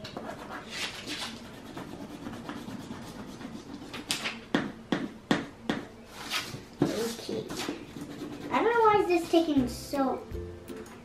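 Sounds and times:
crayon scribbling on paper: 0:00.2 - 0:04.1, 0:06.8 - 0:09.6.

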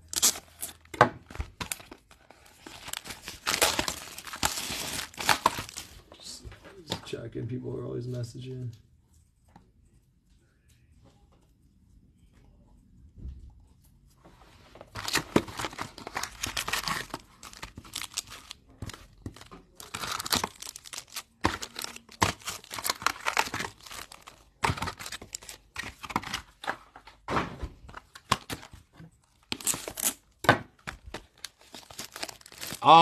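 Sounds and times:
foil wrappers crinkling and tearing: 0:00.0 - 0:06.1, 0:14.9 - 0:26.7, 0:28.1 - 0:33.0.

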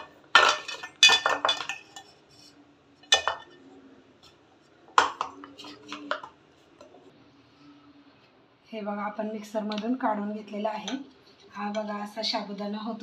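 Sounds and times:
metal kitchen vessels clinking: 0:00.0 - 0:02.1, 0:03.0 - 0:03.6, 0:05.0 - 0:06.3.

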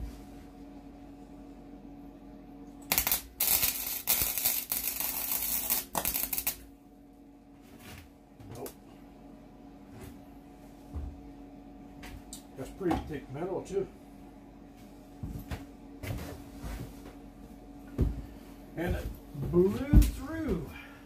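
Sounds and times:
steady low hum: 0:00.0 - 0:21.0
welder arc crackling: 0:02.8 - 0:06.7.

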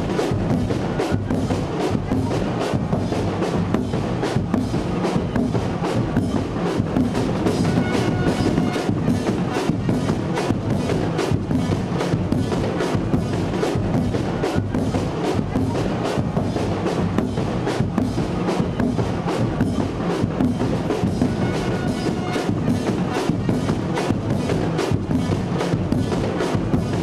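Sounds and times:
drums and hand percussion: 0:00.0 - 0:27.0
brass playing: 0:07.5 - 0:09.6, 0:21.1 - 0:23.3.

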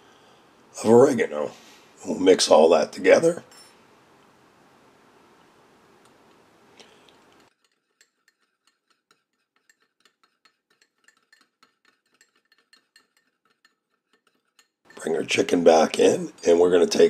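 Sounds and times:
faint hiss: 0:00.0 - 0:07.5.

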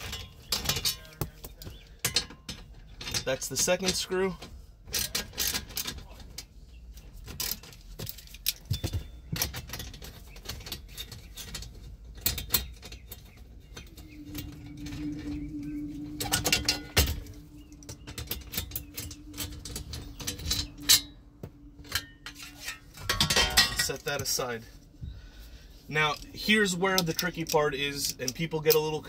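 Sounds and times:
steady low hum: 0:08.1 - 0:29.0.

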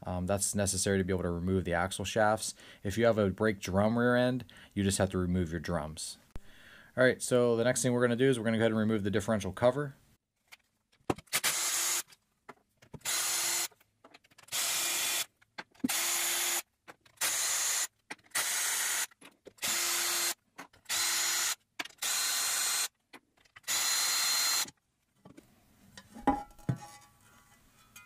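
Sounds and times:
cordless drill spinning bolts: 0:11.3 - 0:12.1, 0:13.0 - 0:13.7, 0:14.4 - 0:22.9, 0:23.5 - 0:24.8.

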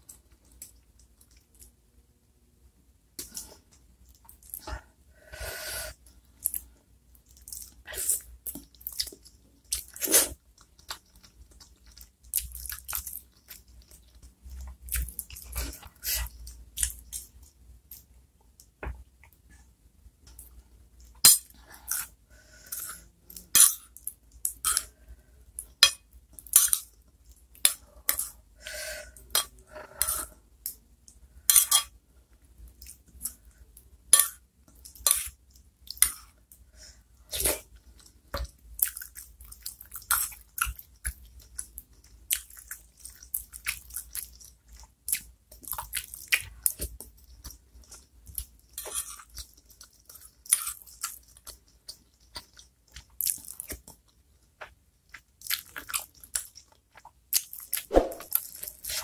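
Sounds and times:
chewing and wet mouth sounds: 0:00.0 - 0:01.8, 0:06.3 - 0:19.5, 0:32.4 - 0:59.0.

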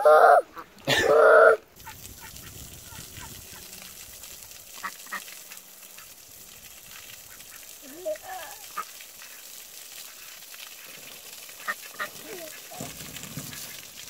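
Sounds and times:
water spraying from a hose: 0:00.1 - 0:14.0
ducks quacking: 0:11.6 - 0:12.9.

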